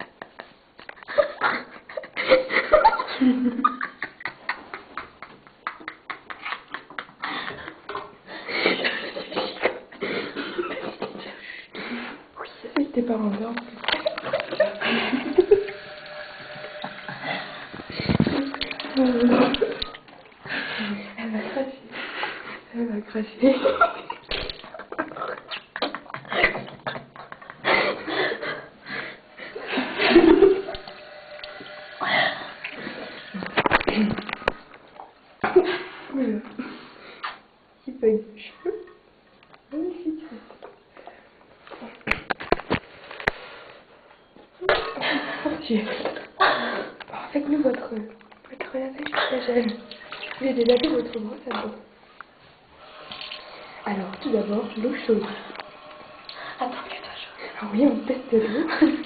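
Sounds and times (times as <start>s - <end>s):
microphone handling clicks and rubbing: 17.8s - 18.7s
person making wordless sounds: 48.0s - 51.9s.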